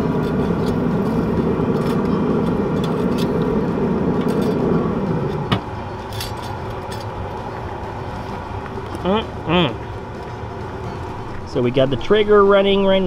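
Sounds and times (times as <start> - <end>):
grill humming: 0.0 - 13.0.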